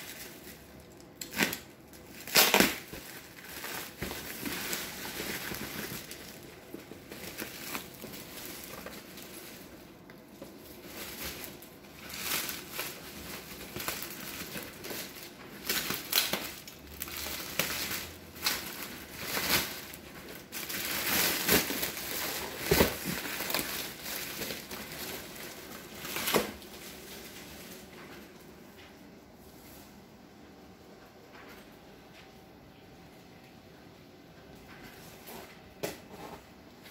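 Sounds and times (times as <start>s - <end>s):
plastic wrapping crinkling and tearing: 0.0s - 29.0s.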